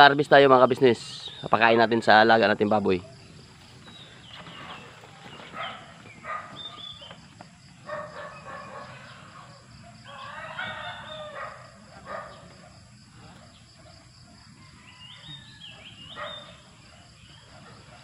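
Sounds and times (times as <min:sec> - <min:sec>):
chickens calling: 0:00.0 - 0:18.0.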